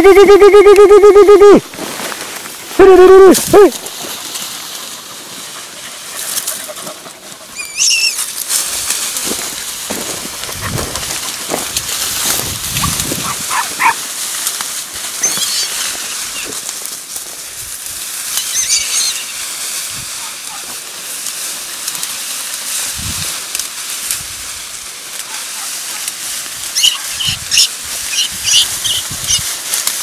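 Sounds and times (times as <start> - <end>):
dogs yelping: 4.8 - 8.3, 12.7 - 14.0, 15.2 - 16.6, 20.2 - 20.8, 25.3 - 26.1, 26.7 - 29.5
steady rustling: 8.3 - 17.8.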